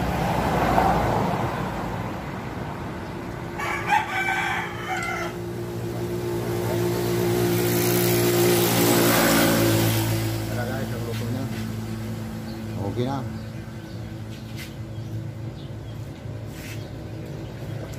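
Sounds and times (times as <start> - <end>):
rooster crowing: 3.6 - 5.6.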